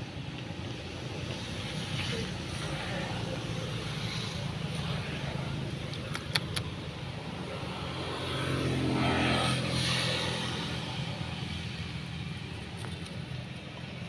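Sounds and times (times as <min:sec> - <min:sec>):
vehicle engine passing: 0:01.4 - 0:14.0
sharp clicks: 0:05.8 - 0:06.7.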